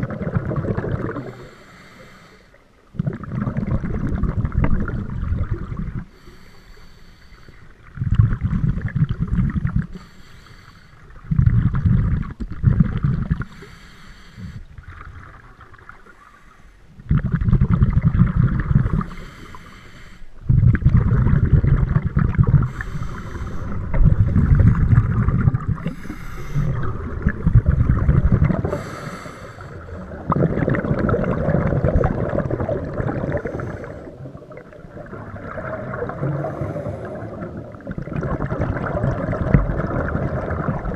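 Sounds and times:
exhaust bubbles rumbling: 0.0s - 1.4s, 3.0s - 6.2s, 7.9s - 9.9s, 11.2s - 13.5s, 17.0s - 19.1s, 20.4s - 40.9s
regulator inhale hiss: 1.2s - 2.6s, 6.1s - 7.8s, 9.9s - 11.2s, 13.4s - 14.8s, 19.0s - 20.4s, 22.7s - 23.9s, 25.8s - 26.8s, 28.6s - 30.0s, 33.4s - 34.2s, 36.5s - 37.4s.

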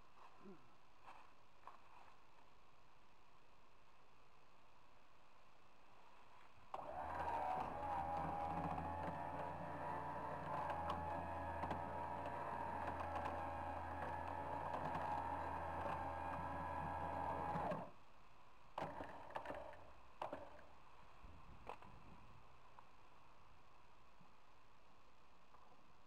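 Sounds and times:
motor humming and whining: 6.7s - 18.0s.

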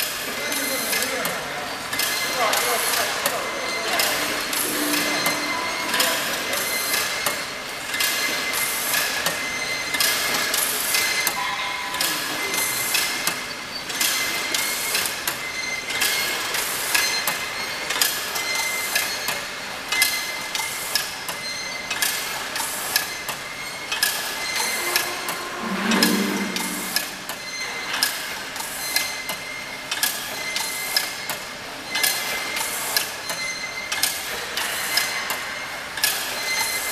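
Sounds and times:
thin steady whine: 3.6s - 7.2s, 24.4s - 27.8s
short low-pitched sound: 24.6s - 27.5s.

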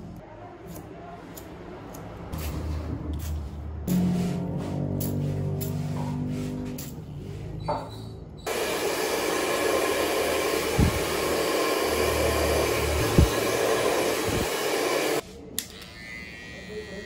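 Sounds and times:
hair dryer blowing: 8.5s - 15.2s.

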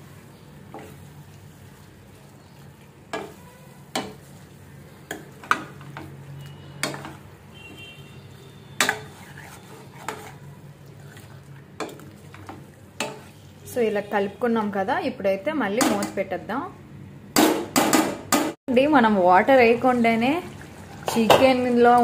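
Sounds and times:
chicken sizzling: 0.0s - 7.6s.

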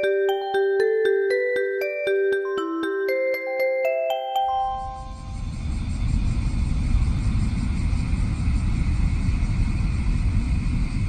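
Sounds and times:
train passing with low rumble: 5.3s - 11.0s.

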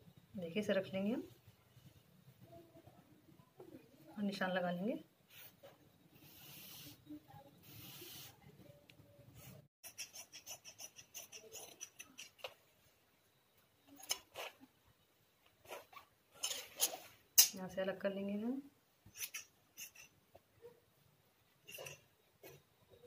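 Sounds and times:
chalk scratching across cloth: 5.3s - 8.5s, 9.8s - 12.4s, 19.1s - 20.2s.

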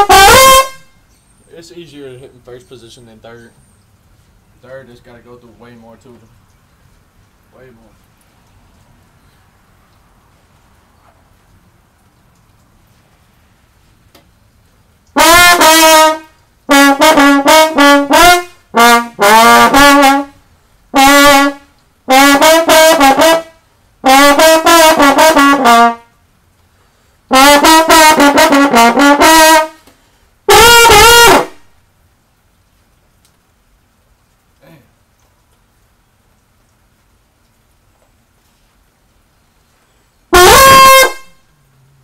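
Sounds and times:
slide trombone playing: 0.0s - 1.1s, 15.2s - 26.2s, 27.3s - 29.9s, 30.5s - 31.7s, 40.3s - 41.5s.

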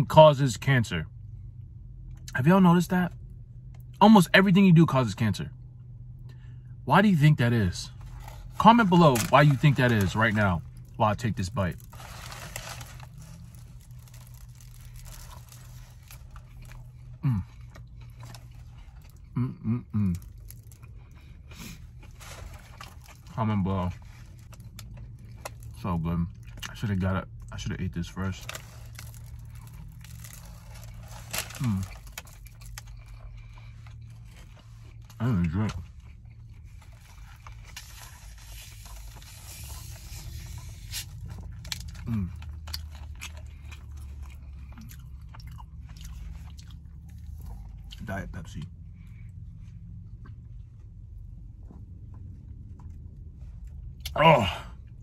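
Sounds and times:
steady low hum: 0.0s - 55.0s
short hummed sounds: 11.8s - 22.8s
person chewing food: 11.8s - 23.3s, 28.6s - 35.2s, 35.8s - 48.0s.

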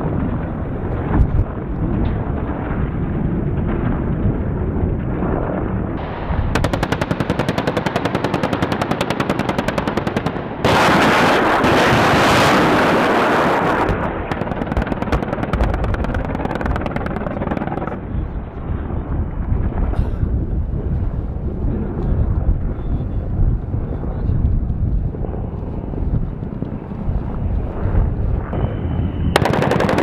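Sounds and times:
rapid cannon fire: 0.0s - 18.1s, 29.2s - 30.0s
loud continuous roar: 0.0s - 30.0s
helicopter rotor noise: 6.5s - 30.0s.

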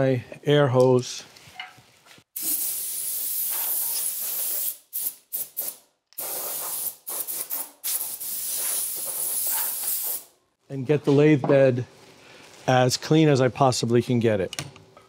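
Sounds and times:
air blow gun hissing: 2.4s - 10.3s
short air blasts: 2.4s - 10.3s.

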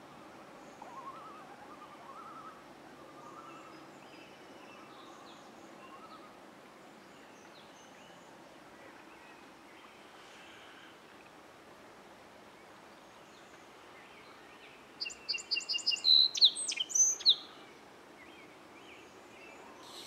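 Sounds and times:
birds singing and calling: 15.0s - 17.6s.

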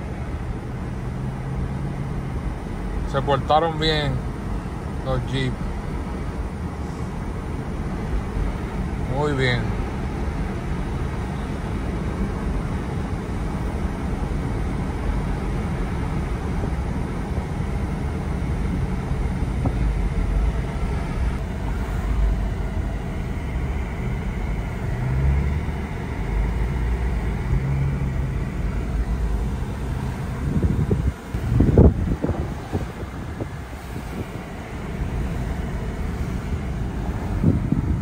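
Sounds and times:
car engine rumble in cabin: 0.0s - 38.0s
tyre noise on road: 0.0s - 38.0s.

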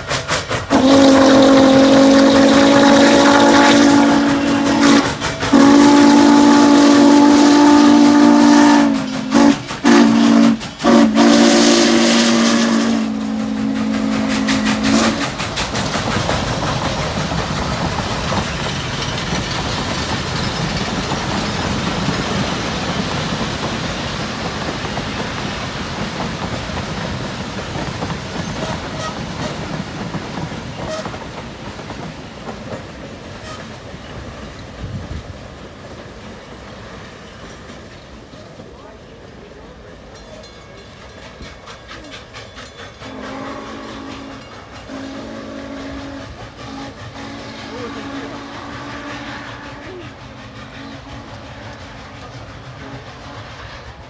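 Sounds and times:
steam whistle blasts: 0.0s - 15.4s, 28.6s - 29.6s, 30.8s - 31.2s, 33.4s - 33.8s, 43.0s - 52.1s
freight cars rolling on rails: 0.0s - 54.0s.

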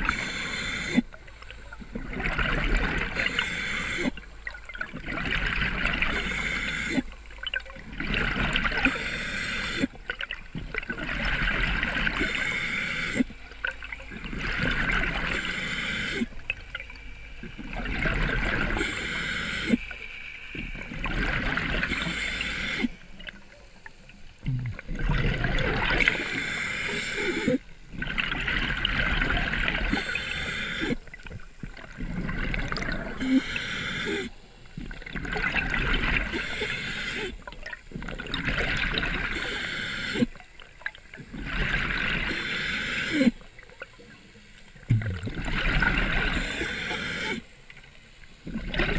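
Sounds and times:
diver breathing through regulator: 0.0s - 1.1s, 3.1s - 4.2s, 6.0s - 7.1s, 8.7s - 10.0s, 12.1s - 13.3s, 15.1s - 16.4s, 18.1s - 23.1s, 26.0s - 27.7s, 29.8s - 31.1s, 32.1s - 34.4s, 36.2s - 37.4s, 39.2s - 40.4s, 42.0s - 43.4s, 45.8s - 47.5s
gurgling exhaled bubbles: 0.0s - 19.9s, 20.5s - 23.5s, 24.4s - 42.5s, 44.8s - 47.5s, 48.4s - 48.9s.

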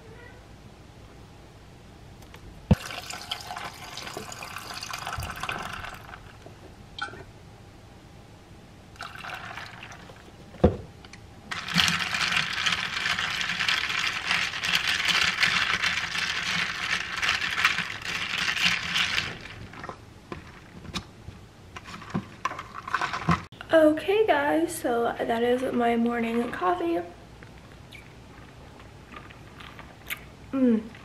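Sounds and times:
milk pouring into cup: 2.7s - 6.2s, 9.0s - 10.2s
drink stirred in plastic cup: 11.5s - 21.0s, 21.8s - 23.5s.

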